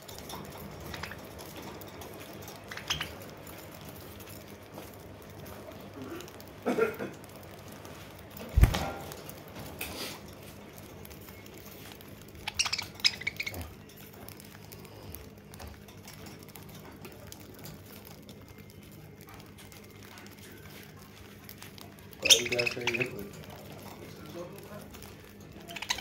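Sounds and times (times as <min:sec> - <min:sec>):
birds pecking at seed: 0:00.0 - 0:26.0
high-pitched bird squeaks: 0:02.7 - 0:03.2, 0:12.4 - 0:13.7, 0:22.2 - 0:23.1, 0:25.6 - 0:26.0.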